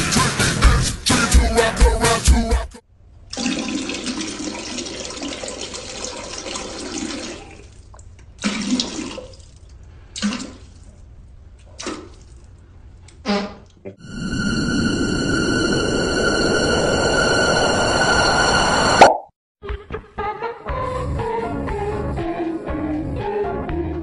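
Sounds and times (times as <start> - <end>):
toilet flushing: 3.3 - 10.9.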